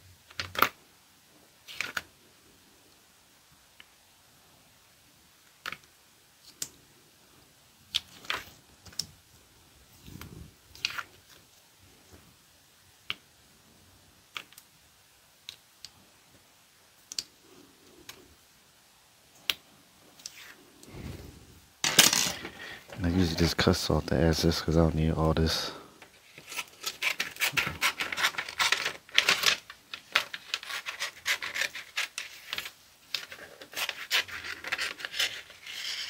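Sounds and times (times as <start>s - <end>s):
vinyl peeling clicks and scratches: 10.7s - 11.4s, 26.3s - 36.0s.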